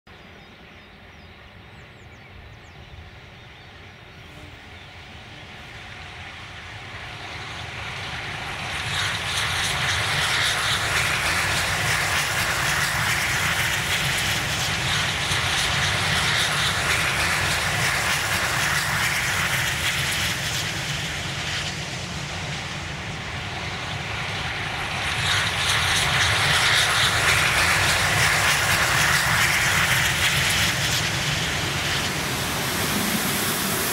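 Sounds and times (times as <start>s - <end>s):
low rumble of train: 0.1s - 33.9s
steam locomotive hauling train: 0.1s - 33.9s.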